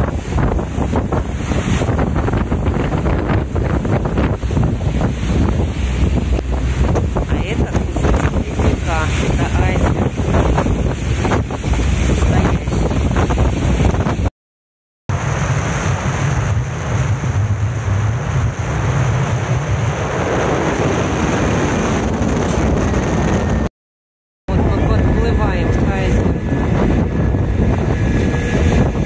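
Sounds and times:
boat engine running: 0.0 - 14.3, 24.5 - 29.0
rushing water: 0.0 - 14.3
wind buffeting microphone: 0.0 - 14.3, 15.2 - 23.7, 24.5 - 29.0.

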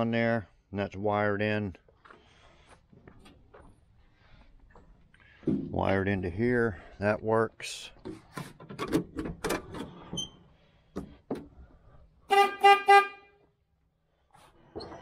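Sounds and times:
truck horn toots: 12.3 - 13.4.

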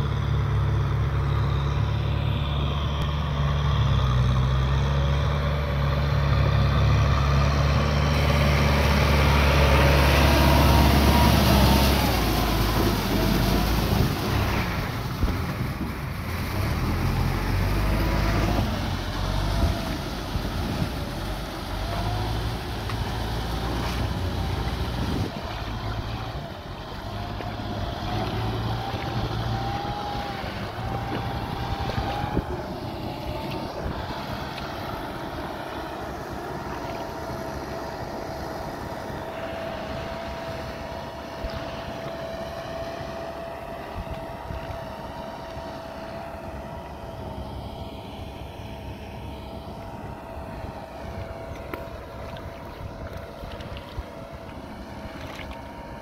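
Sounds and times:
rotary tiller churning water: 0.0 - 56.0
tractor engine running: 0.0 - 56.0
steady whine: 17.3 - 56.0.

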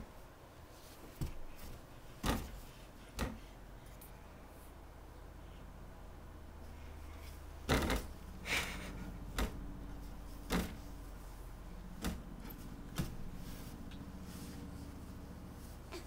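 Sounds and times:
baby's feet thumping on mattress: 12.0 - 13.4.

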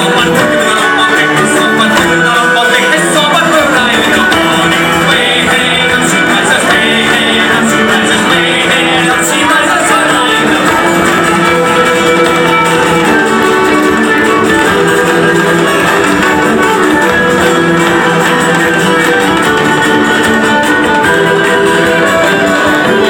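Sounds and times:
frame drum: 0.0 - 23.0
man singing: 0.0 - 23.0
violin: 0.0 - 23.0.

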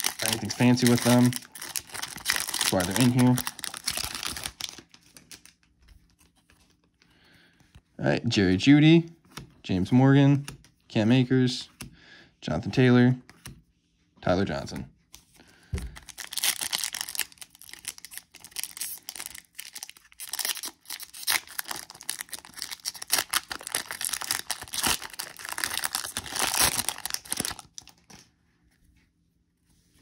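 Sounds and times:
plastic wrapper tearing and crinkling: 0.0 - 5.7, 16.0 - 28.2.

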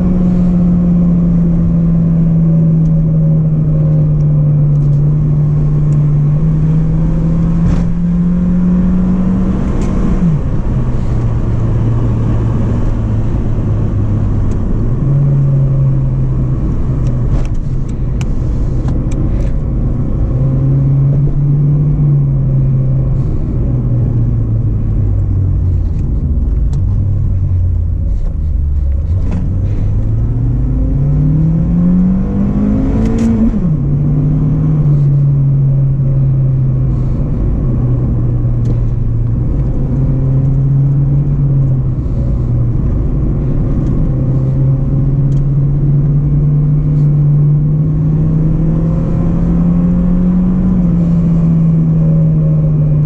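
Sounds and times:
car engine from inside cabin: 0.0 - 53.0.

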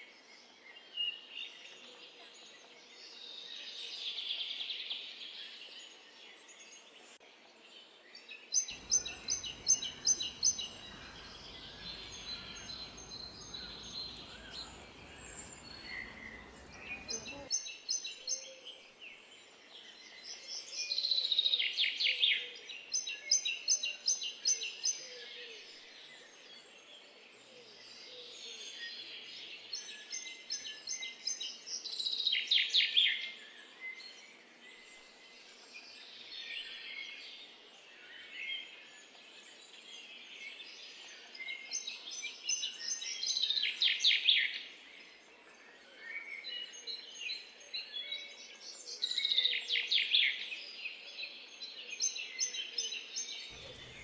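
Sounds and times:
small birds singing: 0.0 - 54.0
faint outdoor background hum: 8.7 - 17.6, 53.5 - 54.0.

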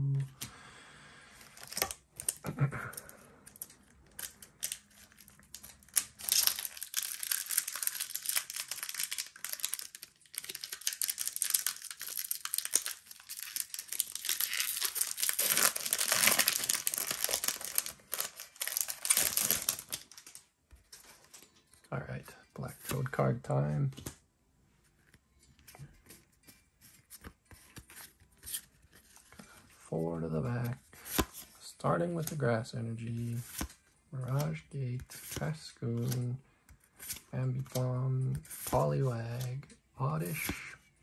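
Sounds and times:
foil wrapper crinkling: 3.5 - 20.4.

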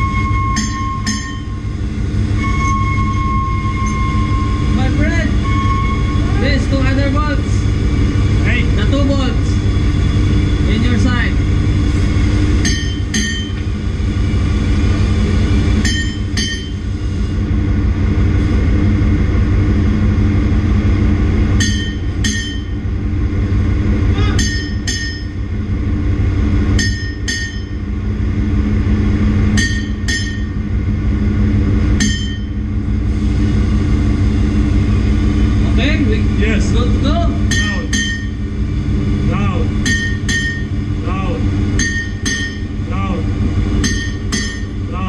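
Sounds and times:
ringing metal-on-metal strikes: 0.0 - 1.6, 12.6 - 13.6, 15.8 - 16.8, 21.6 - 22.8, 24.2 - 25.4, 26.7 - 27.8, 29.5 - 30.6, 32.0 - 32.6, 37.5 - 38.4, 39.8 - 40.8, 41.8 - 42.8, 43.8 - 44.8
engine-room machinery drone: 0.0 - 45.0.

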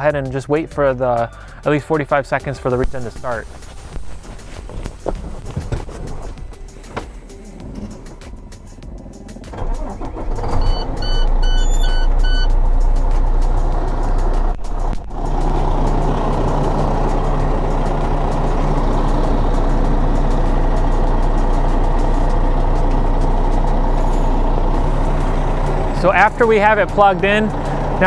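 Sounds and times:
diesel engine starting and idling: 1.0 - 28.0
short electronic beeps: 10.6 - 12.6.

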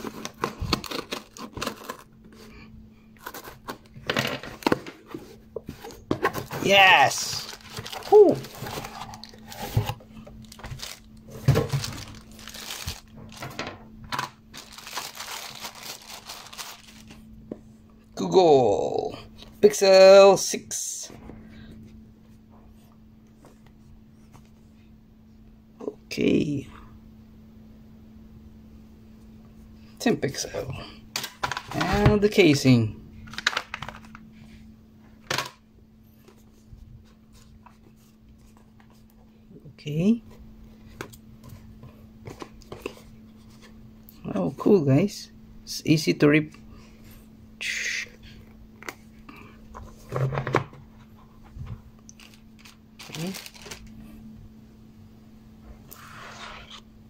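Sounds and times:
cardboard boxes rustling: 0.0 - 2.5, 3.2 - 13.6, 14.5 - 17.2, 49.8 - 53.9
faint steady hum: 0.0 - 57.0
plastic wrapping crinkling: 6.4 - 17.3, 52.1 - 54.0.

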